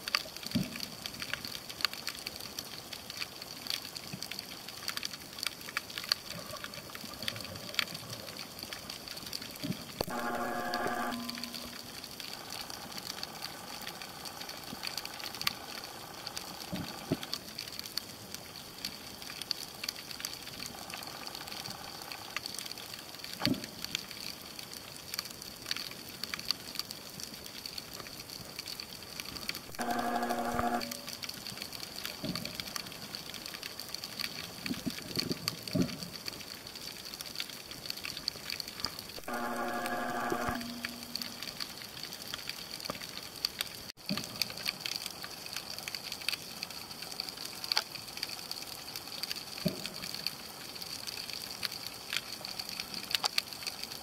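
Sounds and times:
underwater crackle of clicks: 0.0 - 54.0
short pitched tone: 10.0 - 12.0, 29.7 - 31.2, 39.2 - 41.4
faint high whine: 10.0 - 17.2, 29.7 - 31.2, 39.2 - 41.6.

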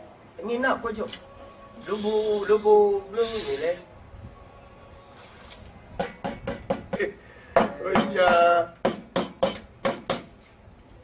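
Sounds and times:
sharp knocks: 6.0 - 10.4.

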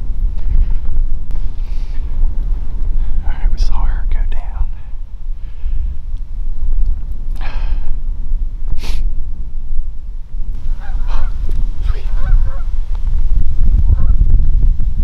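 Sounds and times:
wind rumble on microphone: 0.0 - 15.0
geese honking: 10.6 - 12.9, 13.9 - 14.3.

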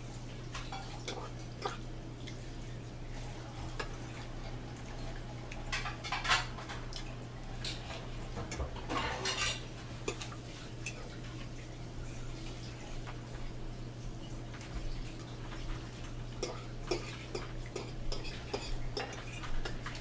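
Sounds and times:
fork scraping plate: 16.4 - 19.8.

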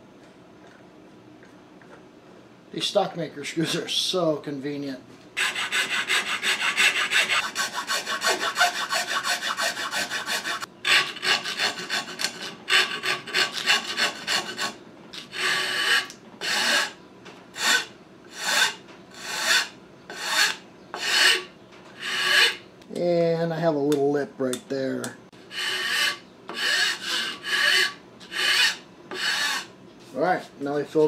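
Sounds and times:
file rasping on wood: 5.4 - 17.0, 17.6 - 22.6, 25.5 - 29.7.

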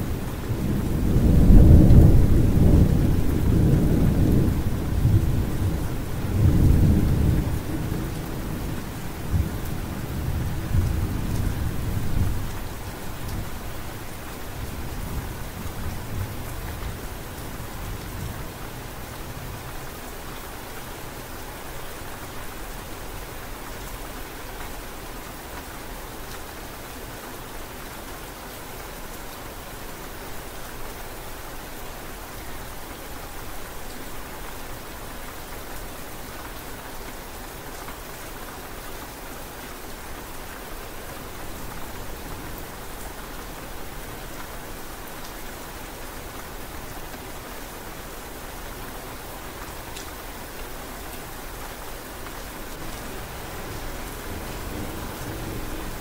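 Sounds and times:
steady rain falling: 0.0 - 56.0
thunder rumbling: 0.1 - 8.7, 52.8 - 56.0.

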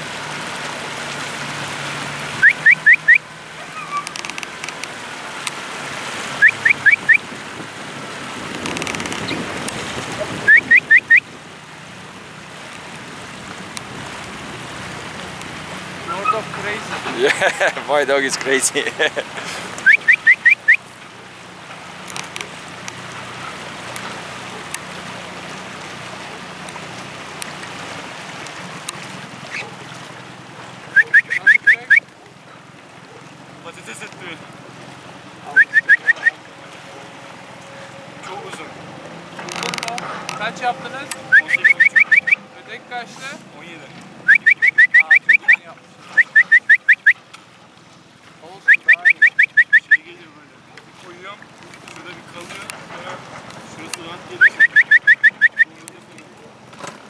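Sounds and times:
boat motor humming: 0.0 - 57.0
water noise: 0.0 - 57.0
dog yelping: 2.4 - 4.2, 29.5 - 29.8.

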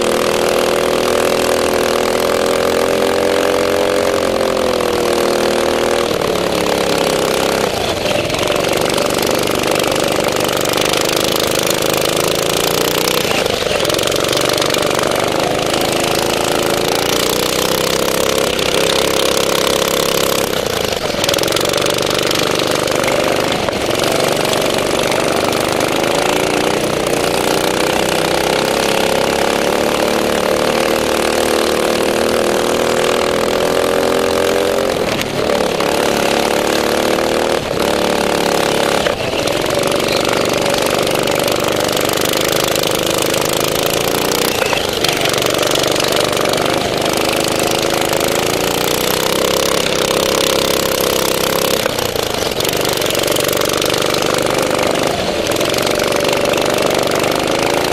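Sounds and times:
go-kart engine running hard: 0.0 - 57.9.

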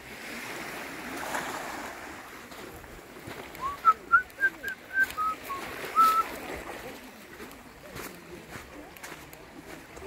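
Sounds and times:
small surf on beach: 0.0 - 10.0
bird whistling: 3.6 - 6.3.

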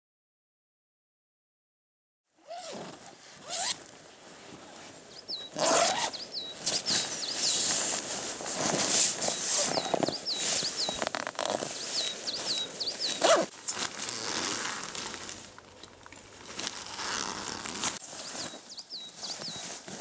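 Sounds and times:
tent zipper rasping: 2.4 - 4.9, 5.5 - 15.5, 16.3 - 20.0
nylon tent fabric rustling: 2.4 - 20.0
small bird chirping: 5.1 - 7.8, 9.2 - 13.5, 18.2 - 19.8.

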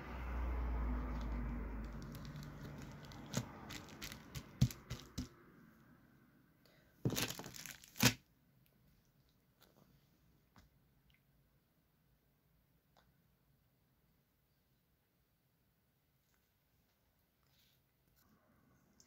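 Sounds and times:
plastic bag crinkling: 1.0 - 5.3, 7.1 - 8.2.

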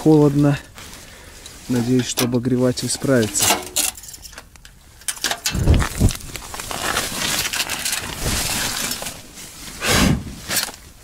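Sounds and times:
rustling handling noise: 0.0 - 11.0.

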